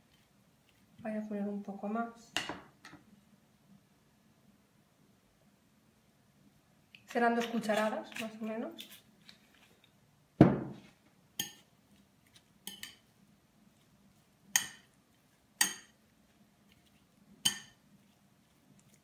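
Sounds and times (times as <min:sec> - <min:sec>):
heavy knock on table: 0:10.4 - 0:10.8
fork clinking against ceramic bowl: 0:11.4 - 0:11.7, 0:12.6 - 0:13.0, 0:14.6 - 0:14.9, 0:15.6 - 0:16.0, 0:17.4 - 0:17.8.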